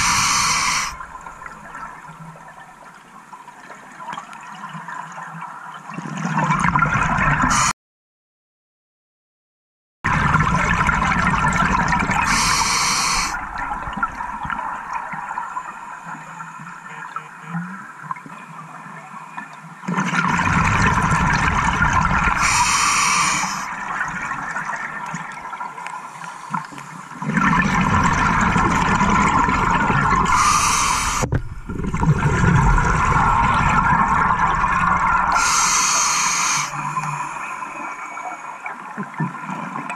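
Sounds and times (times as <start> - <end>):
scuba regulator hiss: 0.0 - 1.0, 7.5 - 7.7, 12.3 - 13.4, 22.4 - 23.7, 30.3 - 31.3, 35.3 - 36.9
exhaled bubbles underwater: 0.0 - 3.0, 3.9 - 7.7, 10.1 - 17.2, 19.8 - 39.9.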